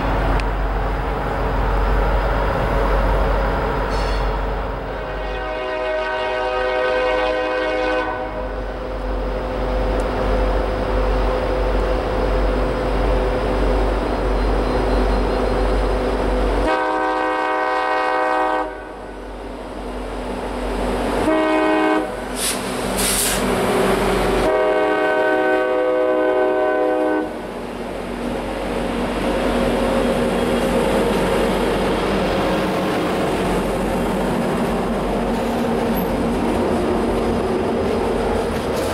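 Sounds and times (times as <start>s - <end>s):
locomotive engine rumble: 0.0s - 5.3s, 19.0s - 38.9s
freight cars wheel and rail noise: 0.0s - 38.9s
locomotive air horn: 5.0s - 8.5s, 16.6s - 19.1s, 21.2s - 23.4s, 24.4s - 27.4s.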